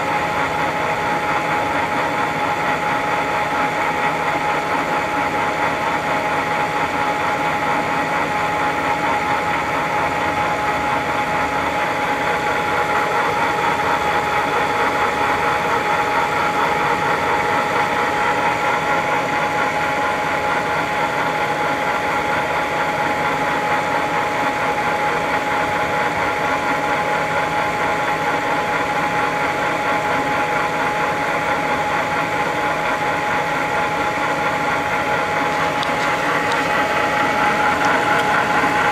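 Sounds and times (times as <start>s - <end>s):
drill press running: 0.0s - 38.9s.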